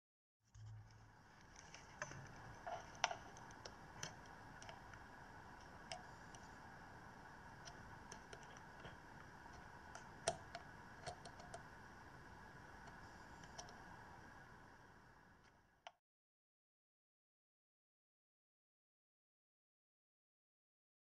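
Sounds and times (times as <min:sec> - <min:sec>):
low hiss: 0:00.6 - 0:15.9.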